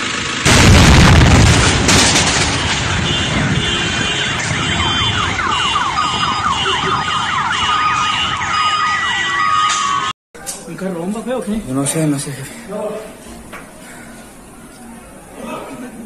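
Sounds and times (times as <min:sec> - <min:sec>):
bomb blast with deep rumble: 0:00.4 - 0:07.4
car alarms beeping and chirping: 0:03.0 - 0:10.1.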